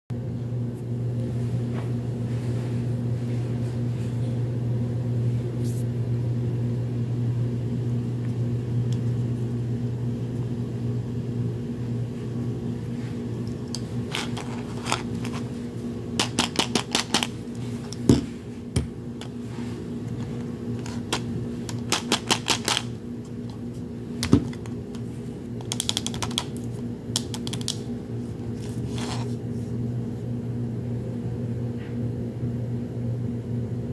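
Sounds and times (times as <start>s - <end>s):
steady low hum: 0.1s - 33.9s
plastic capsules clicking and crackling: 16.2s - 17.3s, 20.8s - 22.9s, 25.6s - 26.6s, 27.2s - 27.8s.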